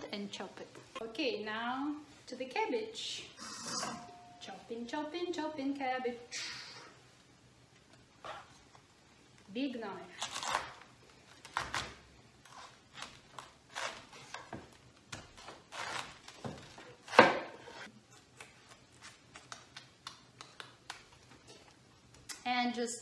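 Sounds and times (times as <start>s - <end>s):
knife cutting cabbage: 10.2s - 19.7s.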